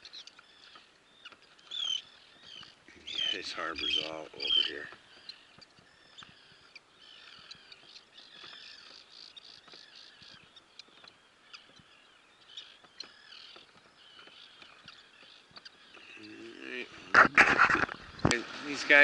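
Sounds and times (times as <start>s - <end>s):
flock of birds chirping: 0.0s - 19.0s.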